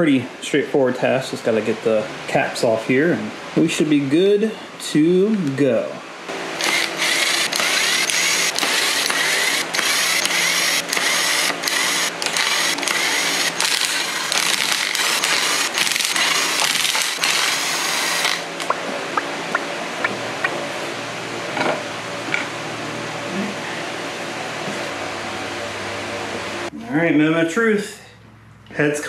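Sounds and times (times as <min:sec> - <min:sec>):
cordless driver running: 0:06.5 - 0:18.7.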